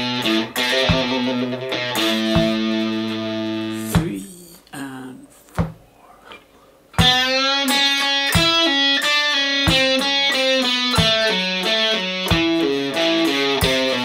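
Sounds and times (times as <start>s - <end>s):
electric guitar lead notes: 0.0s - 4.0s, 7.0s - 14.0s
steady beat: 0.0s - 4.4s, 6.9s - 14.0s.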